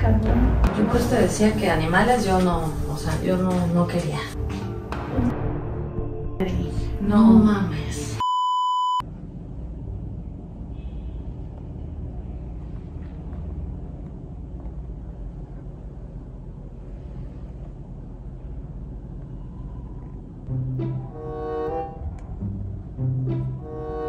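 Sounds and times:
steady test beep: 8.2s - 9.0s
low steady rumble: 9.0s - 24.0s.

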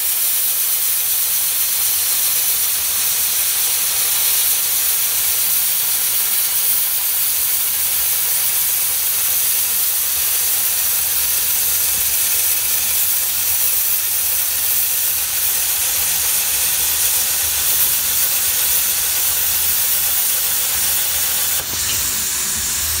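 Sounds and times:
plasma cutter hissing: 0.0s - 23.0s.

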